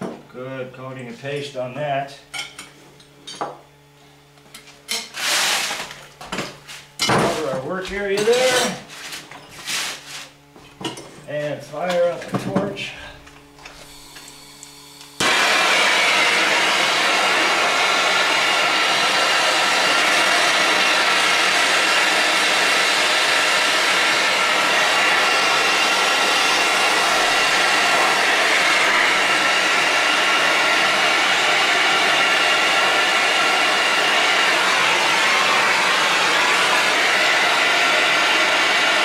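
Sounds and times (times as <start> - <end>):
gas torch flame hissing: 13.6 - 39.0.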